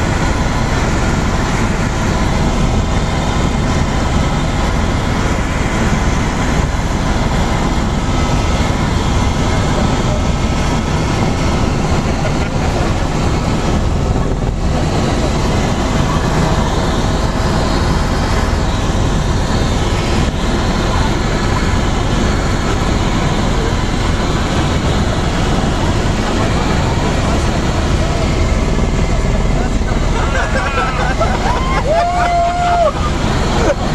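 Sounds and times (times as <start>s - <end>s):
helicopter engine and rotor drone: 0.0s - 33.9s.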